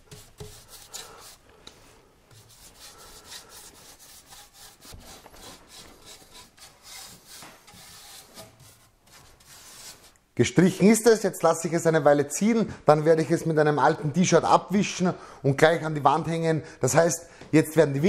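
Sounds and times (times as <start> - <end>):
brush rubbing over boards: 0.0 - 10.2.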